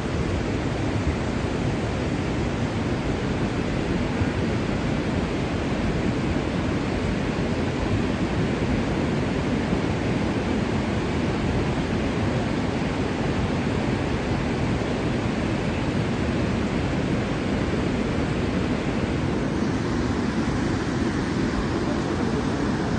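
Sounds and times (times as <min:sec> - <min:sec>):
floodwater rushing: 0:12.9 - 0:22.9.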